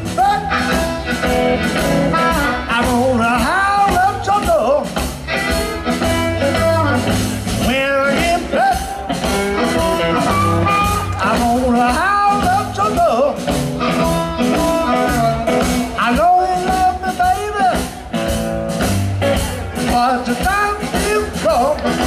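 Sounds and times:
amplified harmonica wailing: 0.0s - 2.8s, 9.3s - 11.3s
drums: 0.0s - 22.0s
electric guitar: 0.0s - 22.0s
upright bass: 0.0s - 22.0s.

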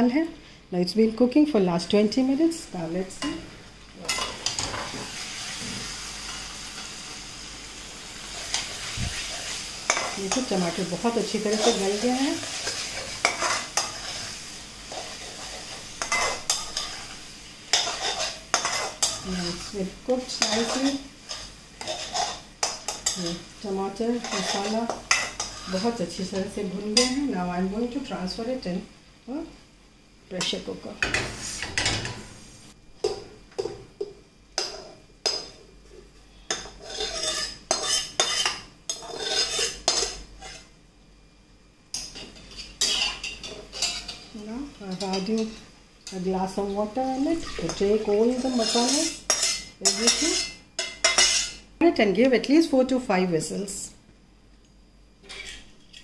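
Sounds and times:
low sizzle of frying: 0.0s - 56.0s
spatula scraping a pan: 8.3s - 27.2s, 36.4s - 40.7s, 42.2s - 44.3s, 47.1s - 51.6s, 55.2s - 55.7s.

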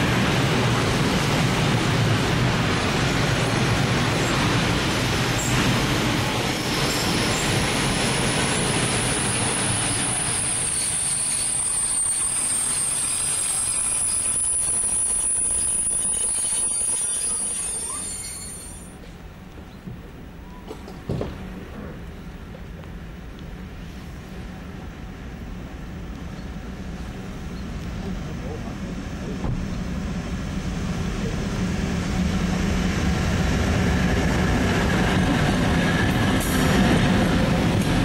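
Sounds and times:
freight train rolling past: 0.0s - 38.0s
high-pitched wheel squeal: 9.1s - 19.0s.

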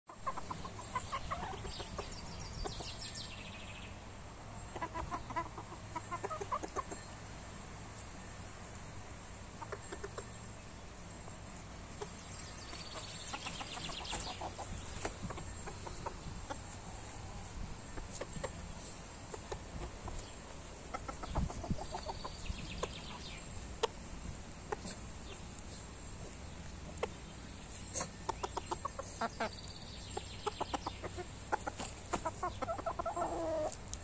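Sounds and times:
chickens clucking: 0.1s - 34.0s.

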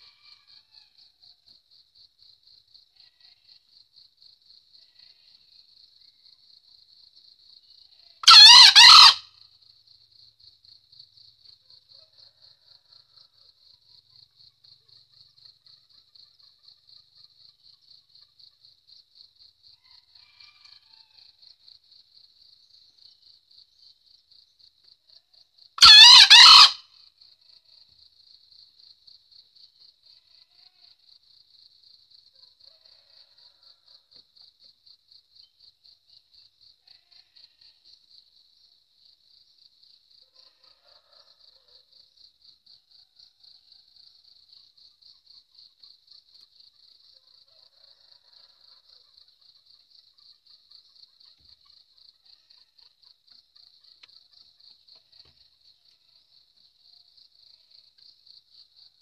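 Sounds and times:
insects chirping: 0.0s - 59.0s
rooster crowing: 8.2s - 9.3s, 25.8s - 26.8s, 40.4s - 41.8s.

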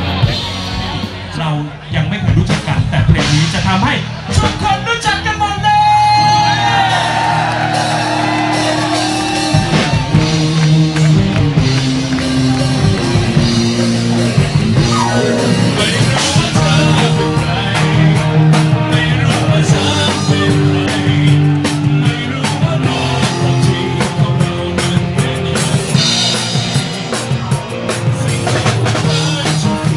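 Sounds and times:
live rock band: 0.0s - 29.9s
man singing into microphone: 15.2s - 26.4s, 28.0s - 29.9s.

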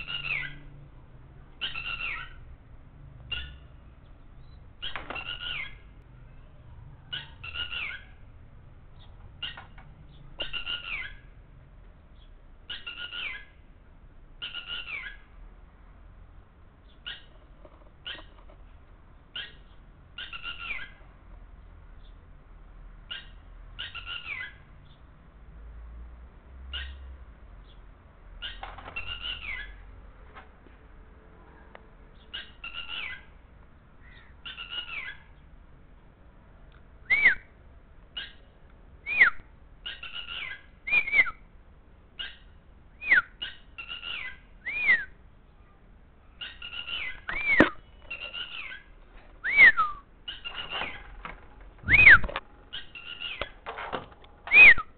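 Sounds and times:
lapwing calling: 0.0s - 0.7s, 1.6s - 2.5s, 4.4s - 6.0s, 7.0s - 8.2s, 9.0s - 11.3s, 12.2s - 13.6s, 14.4s - 15.3s, 16.8s - 18.6s, 19.3s - 21.0s, 23.1s - 24.6s, 28.4s - 29.8s, 32.2s - 33.4s, 34.0s - 35.4s, 38.1s - 41.4s, 42.2s - 53.7s, 54.5s - 54.9s.

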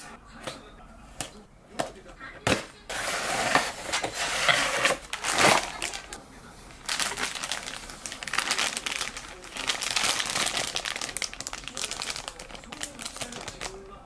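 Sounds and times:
plastic bag crinkling: 2.9s - 14.0s.

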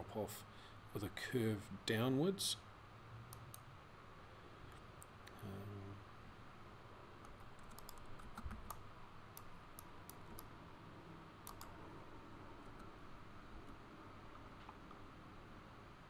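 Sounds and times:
low steady hiss: 0.0s - 16.0s
keyboard and mouse clicking: 7.2s - 10.5s, 11.4s - 11.7s.

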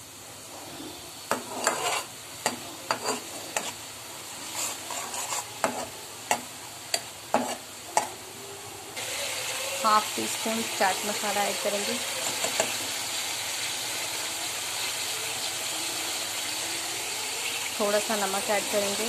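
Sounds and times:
frying sizzle: 0.0s - 19.0s
spoon scraping metal pan: 1.3s - 3.8s, 4.4s - 8.2s, 11.7s - 12.9s.

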